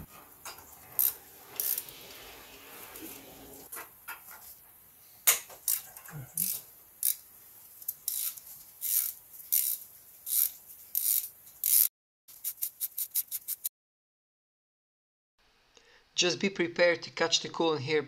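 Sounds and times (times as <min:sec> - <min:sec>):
ratchet clicking: 0:01.0 - 0:01.8, 0:05.7 - 0:07.2, 0:07.9 - 0:13.7.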